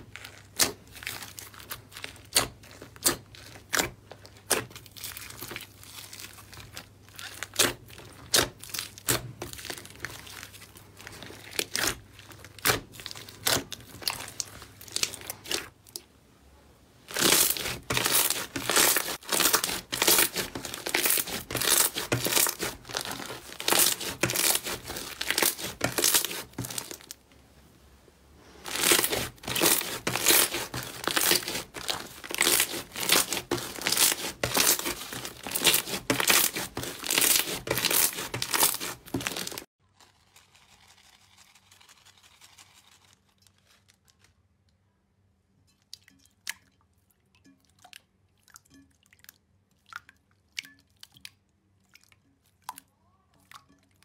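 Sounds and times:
slime crackling and squelching: 0.0 - 16.1, 17.0 - 27.2, 28.4 - 44.4.

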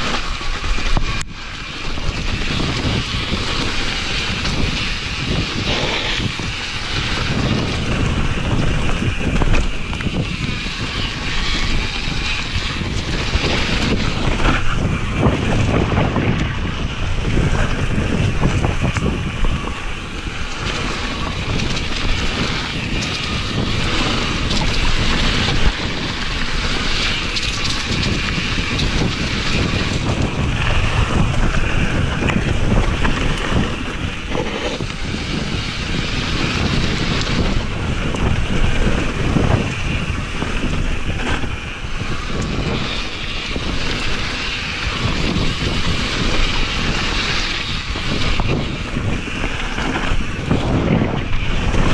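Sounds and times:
bike rattling over bumps: 0.0 - 51.9
tyres rumbling on dirt: 0.0 - 51.9
wind buffeting microphone: 0.0 - 51.9.

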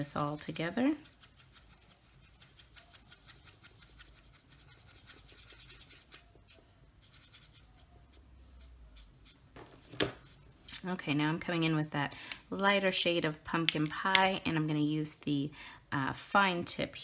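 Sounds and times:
marker scratching on cardstock: 0.0 - 10.4.

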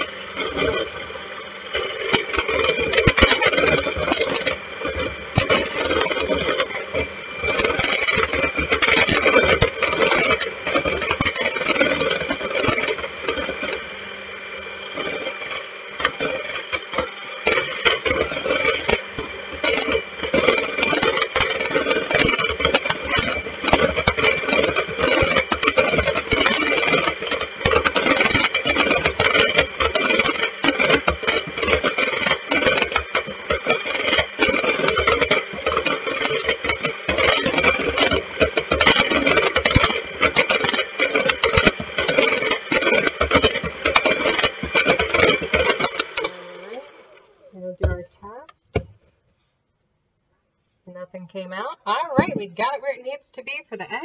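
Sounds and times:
electric hand mixer whining: 0.0 - 48.9, 51.3 - 54.0
beaters rattling against metal bowl: 17.4 - 46.7.

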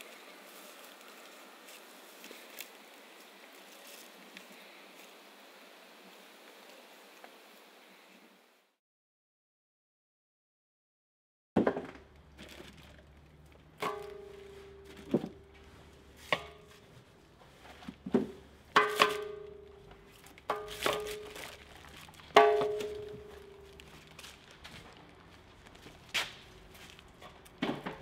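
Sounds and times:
plastic bags crinkling: 12.1 - 17.0, 18.8 - 27.6.

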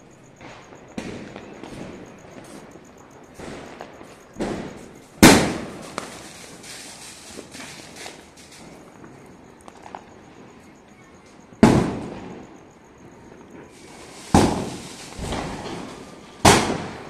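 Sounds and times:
fireworks and firecrackers banging: 0.0 - 17.0.

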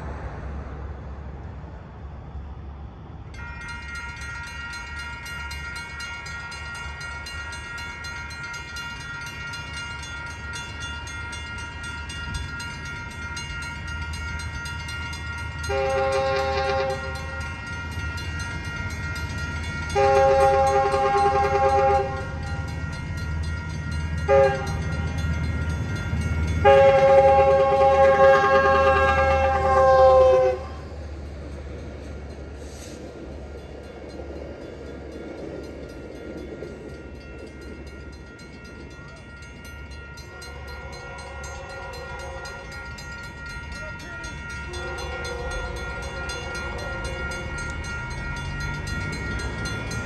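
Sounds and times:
low train rumble: 0.0 - 50.0
railroad crossing bells ringing: 3.2 - 50.0
train horn blasts: 3.4 - 31.2, 39.4 - 50.0.

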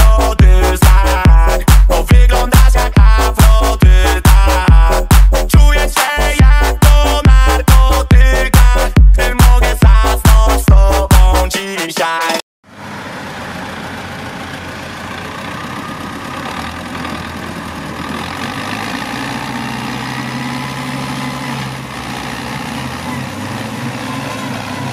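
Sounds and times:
tractor diesel engines running: 0.0 - 11.1, 12.7 - 24.9
dance music with steady beat: 0.0 - 12.4.

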